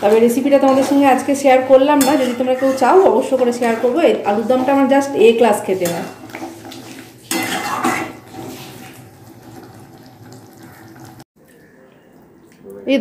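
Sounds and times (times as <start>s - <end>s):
metal spatula scraping pan: 0.0s - 9.7s.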